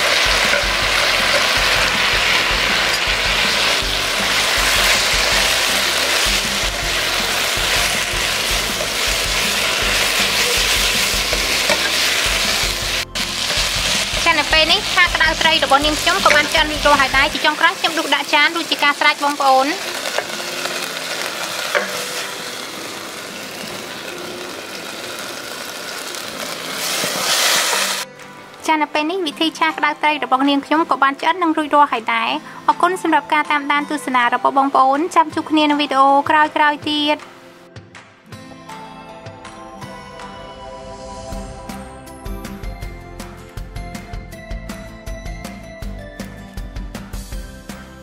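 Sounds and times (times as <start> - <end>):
food sizzling in a wok: 0.0 - 28.1
background music: 0.0 - 48.0.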